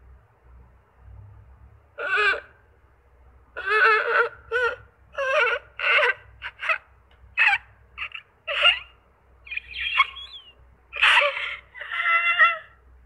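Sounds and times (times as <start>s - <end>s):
girl sobbing and whimpering: 3.6s - 6.8s, 11.0s - 12.8s.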